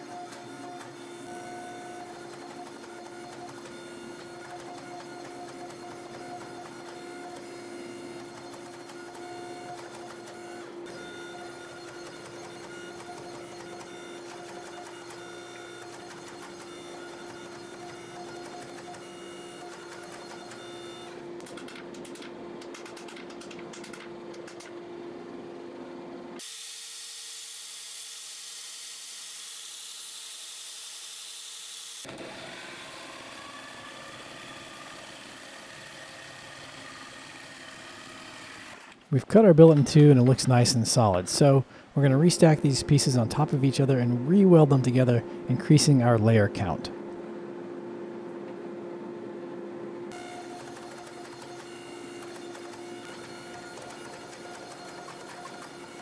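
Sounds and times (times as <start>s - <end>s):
band saw cutting metal: 26.4s - 39.0s, 50.1s - 56.0s
forging press electric hum: 32.1s - 56.0s.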